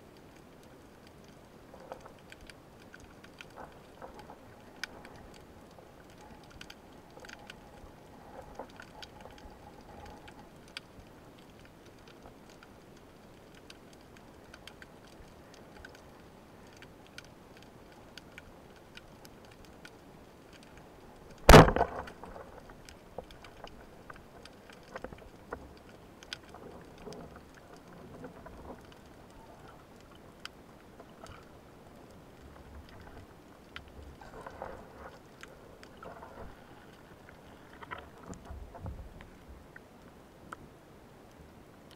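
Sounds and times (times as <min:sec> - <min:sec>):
underwater crackling clicks: 0:00.1 - 0:40.7
speargun firing crack: 0:21.5 - 0:22.0.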